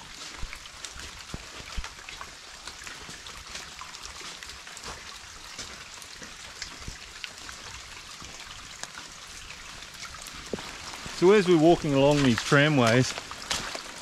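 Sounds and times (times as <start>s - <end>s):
close raindrops ticking: 0.0s - 14.0s
heavy rain falling: 9.8s - 14.0s.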